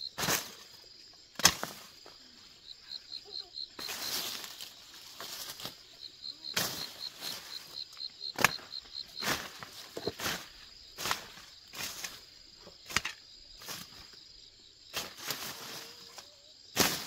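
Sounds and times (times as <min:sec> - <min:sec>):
insect chirping: 0:00.0 - 0:17.0
grass rustling swishes: 0:00.2 - 0:00.8, 0:03.8 - 0:05.9, 0:06.5 - 0:07.8, 0:09.2 - 0:12.3, 0:13.6 - 0:14.1, 0:14.9 - 0:16.2, 0:16.8 - 0:17.0.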